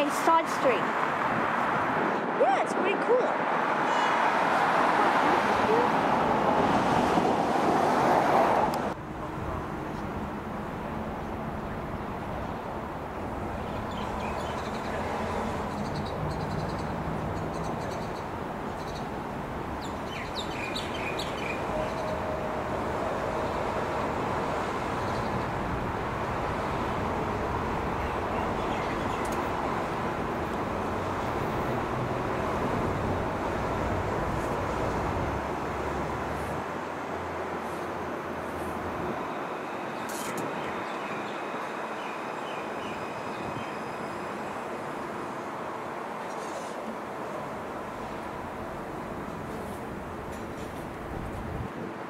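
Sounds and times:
street traffic noise: 0.0 - 52.0
birds chirping: 13.5 - 30.1.

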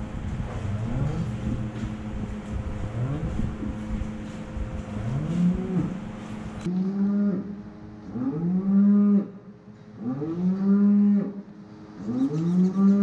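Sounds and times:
steady hum: 0.0 - 13.0
cattle mooing: 10.0 - 11.4.

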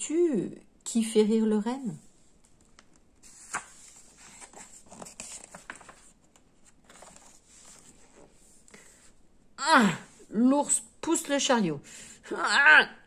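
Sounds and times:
paper page turning: 2.5 - 9.0.

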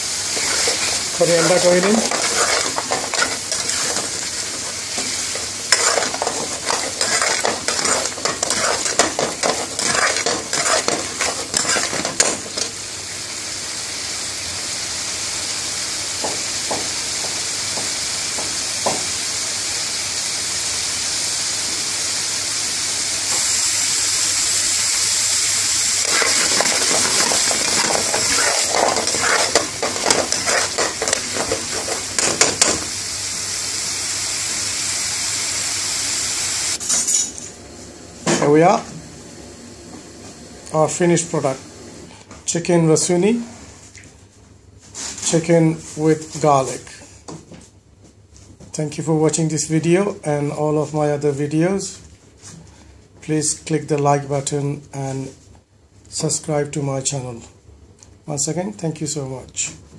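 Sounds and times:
steady sizzling: 0.0 - 37.6
metal spoon scraping frying pan: 0.4 - 12.7, 26.0 - 32.7.

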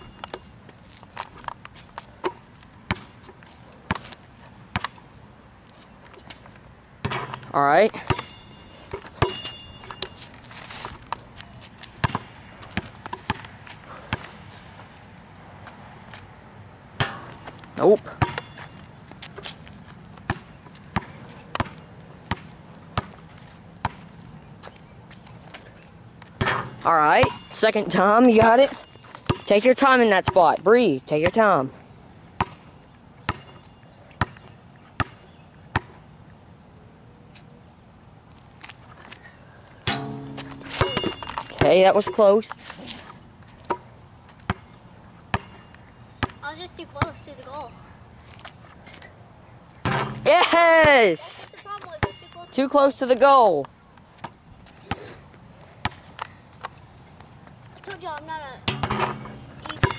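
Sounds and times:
basketball bouncing on concrete: 2.2 - 3.1, 7.0 - 10.2, 11.8 - 14.3, 17.0 - 19.5, 20.2 - 23.2, 23.8 - 24.1, 26.2 - 31.7, 32.4 - 32.7, 33.3 - 34.4, 35.0 - 36.0, 39.8 - 42.6, 43.6 - 44.7, 45.3 - 45.6, 46.2 - 46.4, 49.8 - 51.2, 51.8 - 53.2, 55.8 - 56.3, 58.6 - 59.9.

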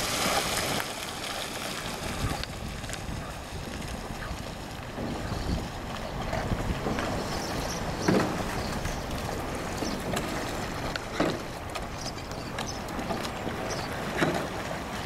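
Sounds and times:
paddles splashing water: 0.0 - 15.0
rush of water and air: 0.0 - 15.0.

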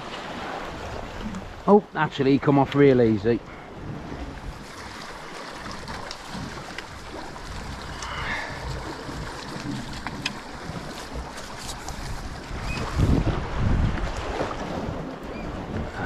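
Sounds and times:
sea washing against rocks: 0.0 - 16.0
wind buffeting microphone: 3.4 - 16.0.

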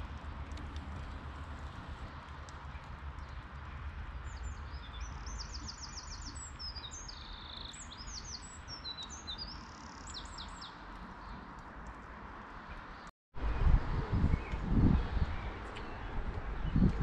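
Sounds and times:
songbird singing: 3.2 - 11.6, 12.7 - 17.0.

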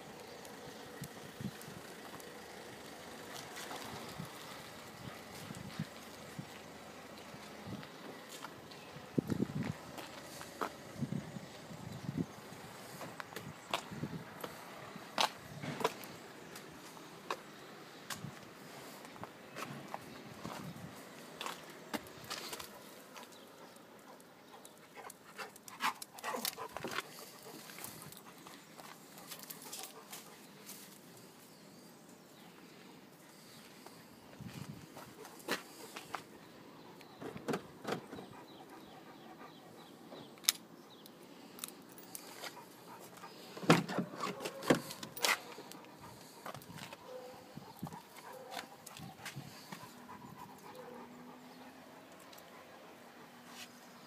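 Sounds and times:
dog panting: 22.7 - 30.6, 38.1 - 40.3, 42.2 - 43.6, 44.3 - 53.7.

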